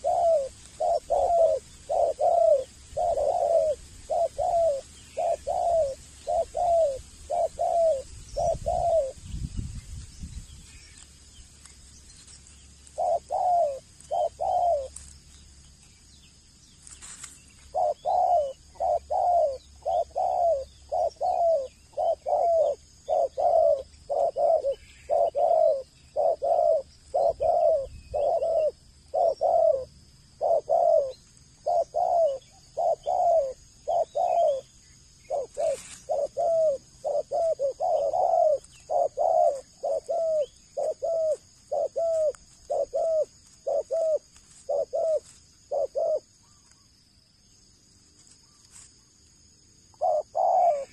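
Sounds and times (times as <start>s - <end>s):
dove cooing: 0.0s - 9.2s, 12.8s - 15.1s, 17.6s - 46.7s, 49.9s - 50.9s.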